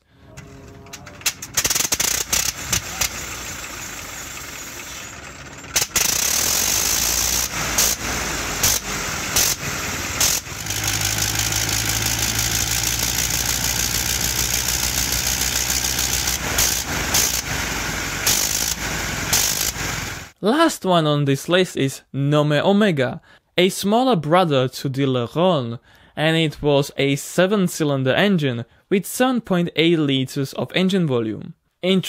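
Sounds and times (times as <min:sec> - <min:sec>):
biplane rotary engine starting: 0:00.0 - 0:20.4.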